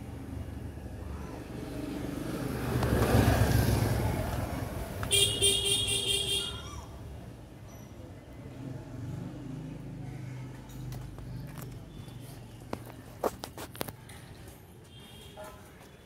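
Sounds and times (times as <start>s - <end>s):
vehicle passing: 0.0s - 7.1s, 8.3s - 12.8s
vehicle horn pulsing: 5.1s - 6.6s.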